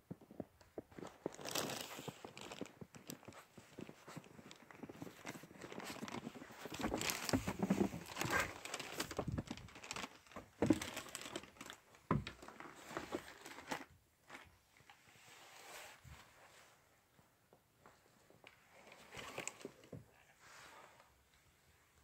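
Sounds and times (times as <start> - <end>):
rustling handling noise: 0.3 - 21.2.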